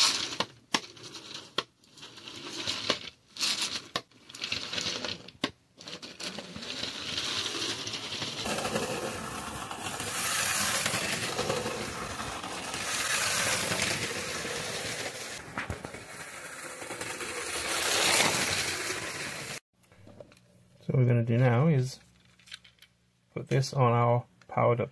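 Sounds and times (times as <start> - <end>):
toy train rattling on track: 0.0 - 19.6.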